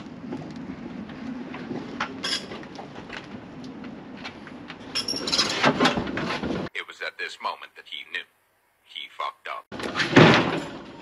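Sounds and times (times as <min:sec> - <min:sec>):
trailer rattles and knocks: 0:00.0 - 0:06.7.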